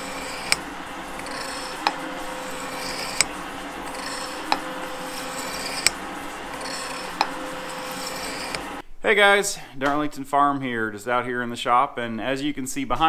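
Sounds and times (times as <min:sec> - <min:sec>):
metal shaper machine hum: 0:00.0 - 0:08.8.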